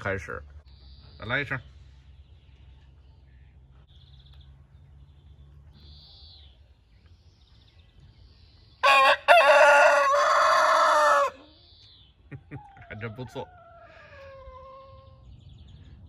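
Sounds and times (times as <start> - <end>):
rooster crowing: 8.8 - 11.4.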